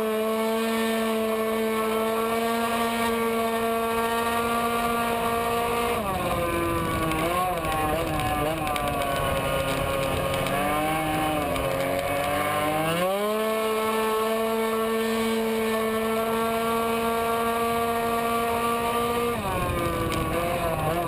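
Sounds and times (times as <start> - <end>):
scooter engine at full throttle: 0.0 - 21.0.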